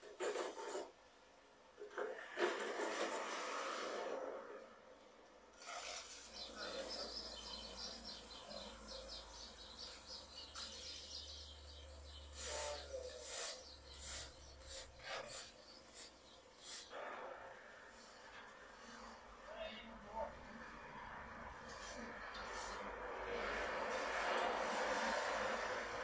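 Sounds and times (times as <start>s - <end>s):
shovels scraping tarmac: 2.2s - 4.4s, 5.6s - 7.0s.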